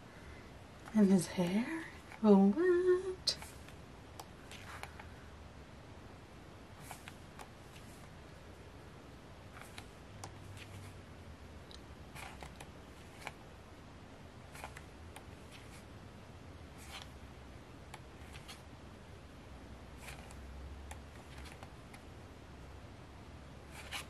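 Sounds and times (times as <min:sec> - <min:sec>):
low steady hum: 0:00.0 - 0:24.0
pages turning: 0:03.4 - 0:03.8, 0:04.4 - 0:05.1, 0:06.8 - 0:08.1, 0:09.5 - 0:11.0, 0:12.1 - 0:13.4, 0:14.5 - 0:15.9, 0:16.8 - 0:17.2, 0:18.2 - 0:18.7, 0:20.0 - 0:20.4, 0:21.1 - 0:22.0, 0:23.7 - 0:24.0.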